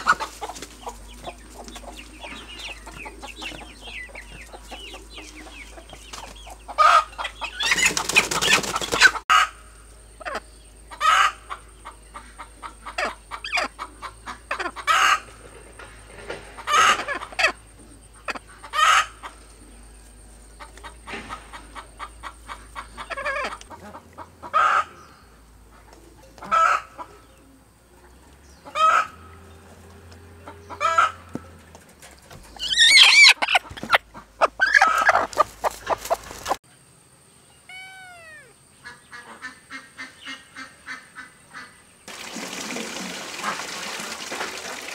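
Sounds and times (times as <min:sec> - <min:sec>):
hen squawking: 0:32.6 - 0:36.1, 0:37.7 - 0:41.7.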